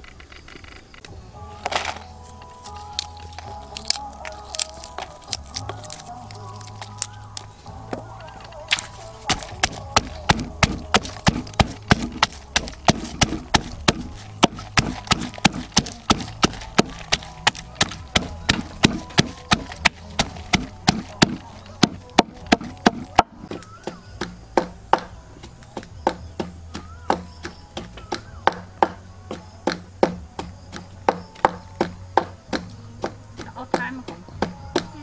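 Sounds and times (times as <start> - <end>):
knife chopping on wooden board: 9.3 - 23.3.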